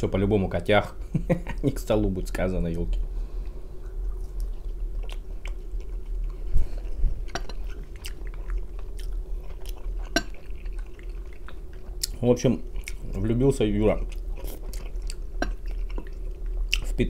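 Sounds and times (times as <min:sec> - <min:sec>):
steady low hum: 0:00.0 - 0:17.0
person chewing: 0:03.4 - 0:13.3, 0:13.9 - 0:17.0.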